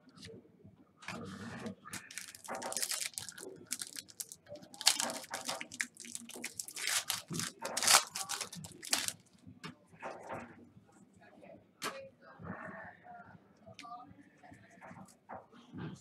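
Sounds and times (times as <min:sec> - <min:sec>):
foil packs crinkling and tearing: 0:02.0 - 0:09.2.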